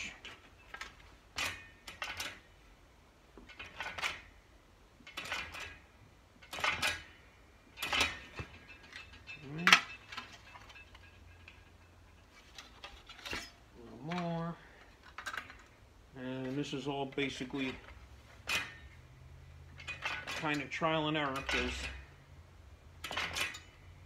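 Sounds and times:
metal shrinker clanking: 5.0s - 22.2s, 22.9s - 24.0s.

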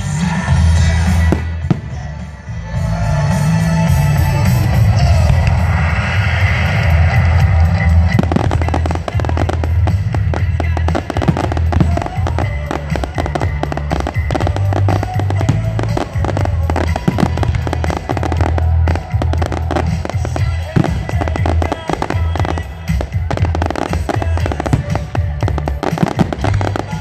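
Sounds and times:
music playing: 0.0s - 27.0s
fireworks crackling and popping: 6.5s - 27.0s.

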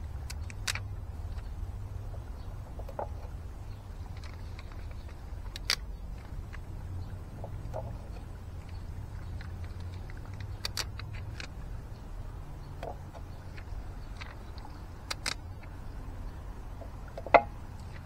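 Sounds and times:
steady low rumble: 0.0s - 18.0s
adhesive dots peeling crackles: 0.2s - 1.5s, 3.6s - 6.7s, 7.6s - 11.7s, 13.5s - 15.8s.

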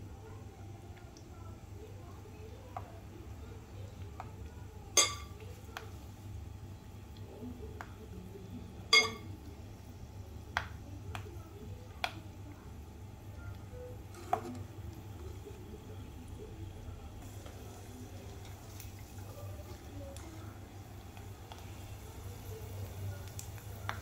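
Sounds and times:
low steady hum: 0.0s - 24.0s
peanuts deep-frying in oil: 0.0s - 24.0s
wire basket clinking on pan: 8.9s - 9.2s.

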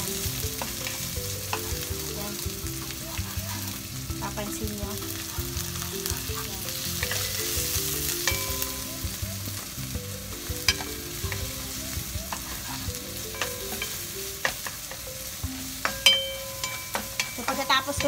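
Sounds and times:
onions sizzling in hot oil: 0.0s - 18.0s
spatula scraping: 12.2s - 15.2s.

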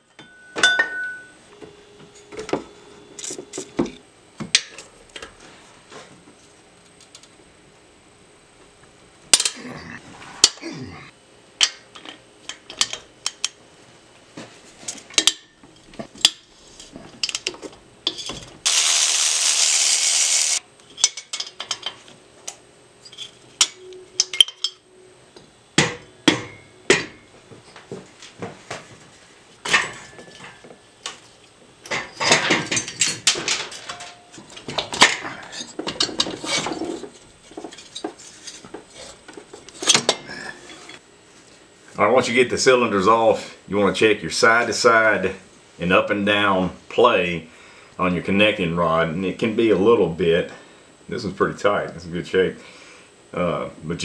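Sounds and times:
cordless power tool running: 18.6s - 20.6s.

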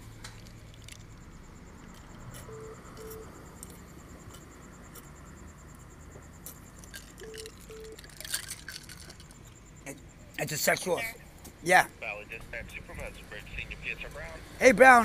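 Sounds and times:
crickets chirping: 0.0s - 15.0s
short low phone beeps: 2.4s - 3.4s, 7.2s - 8.0s.

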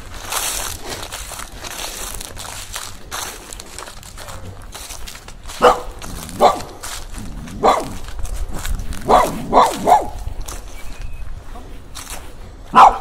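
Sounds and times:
dog barking: 5.6s - 6.8s, 7.5s - 8.0s, 9.0s - 10.2s, 12.7s - 13.0s.

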